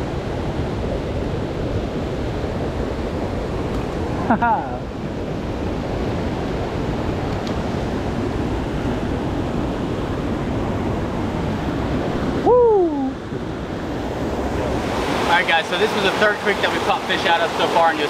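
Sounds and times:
person exclaiming: 0:12.4 - 0:13.2
creek running over rocks: 0:14.8 - 0:18.0.

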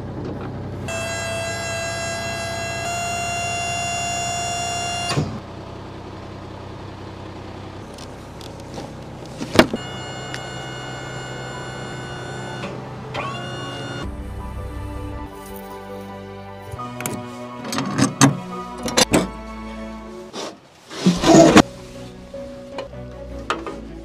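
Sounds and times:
electric motor whining: 0:00.9 - 0:05.4, 0:09.7 - 0:14.1.

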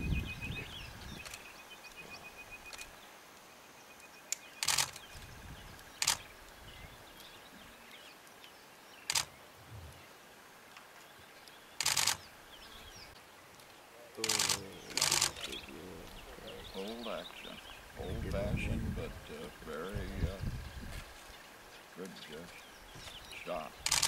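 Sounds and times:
camera shutters clicking: 0:04.6 - 0:05.1, 0:06.0 - 0:06.2, 0:09.1 - 0:09.3, 0:11.8 - 0:12.2, 0:14.2 - 0:15.6.

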